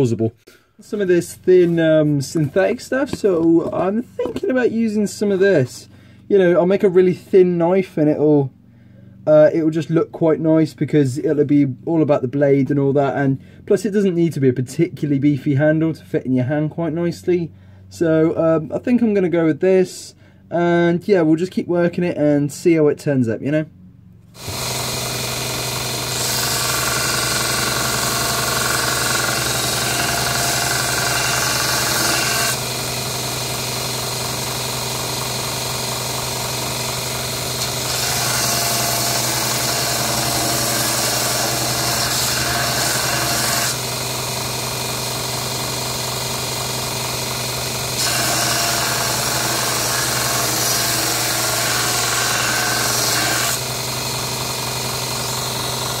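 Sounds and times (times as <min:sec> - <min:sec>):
belt grinder motor hum: 0:24.3 - 0:56.0.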